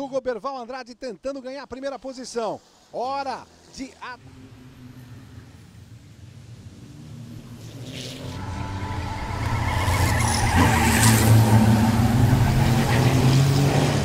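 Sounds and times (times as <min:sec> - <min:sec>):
racing trucks passing: 0:02.6 - 0:14.0.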